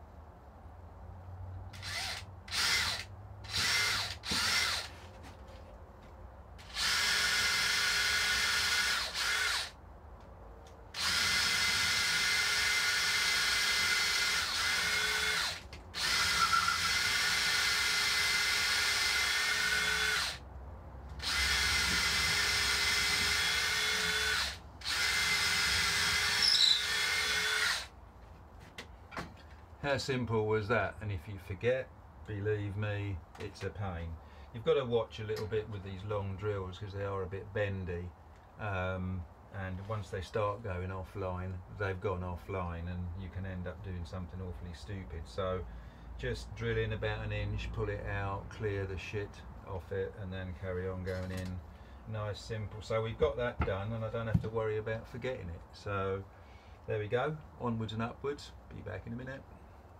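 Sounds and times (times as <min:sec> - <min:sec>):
cordless drill whining: 0:01.8 - 0:05.0, 0:06.6 - 0:09.8, 0:11.0 - 0:20.4, 0:21.2 - 0:27.9.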